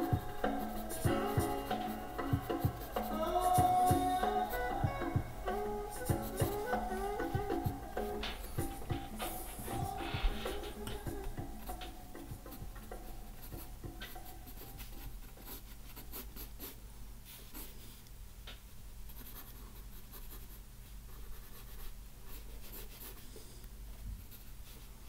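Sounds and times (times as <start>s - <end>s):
pencil scratching on paper: 0.0s - 4.6s, 6.0s - 16.8s, 19.1s - 23.5s
low steady hum: 0.0s - 25.0s.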